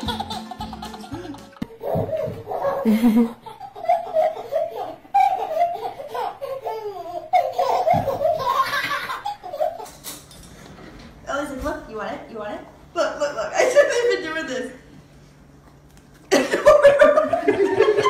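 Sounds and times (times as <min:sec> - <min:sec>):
baby laughing: 0:00.0 - 0:10.2.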